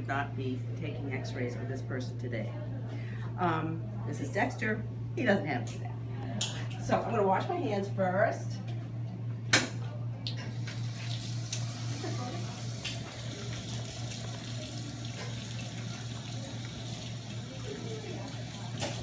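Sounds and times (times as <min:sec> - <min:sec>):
tap water running into sink: 0:10.5 - 0:19.0.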